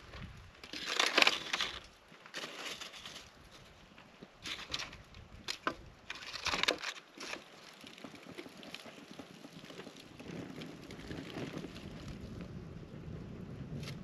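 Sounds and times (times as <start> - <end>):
campfire crackling: 0.0 - 14.0
sticks knocking and clattering: 0.6 - 3.2, 4.4 - 7.5.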